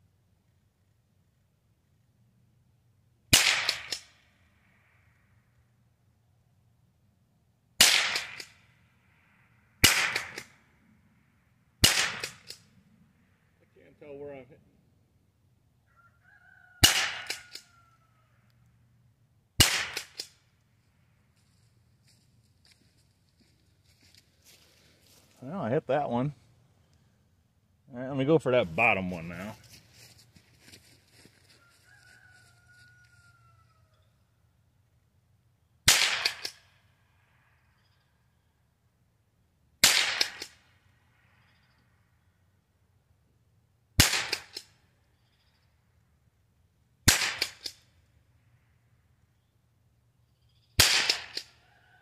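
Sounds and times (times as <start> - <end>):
rifle shots: 3.3 - 4.2, 7.8 - 8.7, 9.8 - 10.6, 11.8 - 12.6, 16.8 - 17.6, 19.6 - 20.4, 35.8 - 36.6, 39.8 - 40.6, 44.0 - 44.7, 47.0 - 47.8, 50.8 - 51.5.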